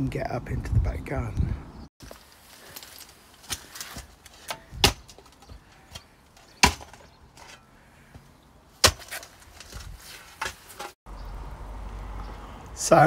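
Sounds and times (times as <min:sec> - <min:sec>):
knocks and scrapes: 0:02.0 - 0:11.0
spade chopping into stony soil: 0:03.4 - 0:05.3, 0:05.9 - 0:07.1, 0:08.8 - 0:09.3.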